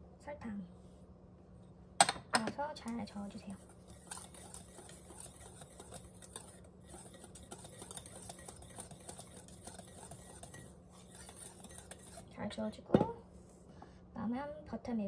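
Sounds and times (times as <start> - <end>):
whisk scraping metal bowl: 3.0 - 12.5.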